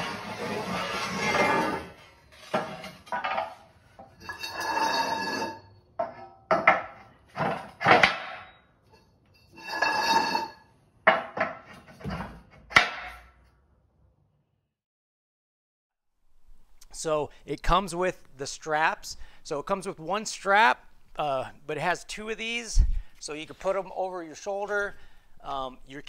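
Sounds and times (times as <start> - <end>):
metallic scrapes with ringing tone: 4.1 - 5.8, 8.5 - 10.8.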